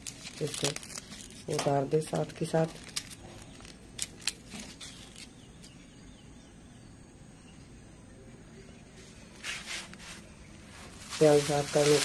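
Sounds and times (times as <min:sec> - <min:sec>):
onion skins crackling: 0:00.0 - 0:05.8, 0:09.4 - 0:12.0
faint background noise: 0:00.0 - 0:12.0.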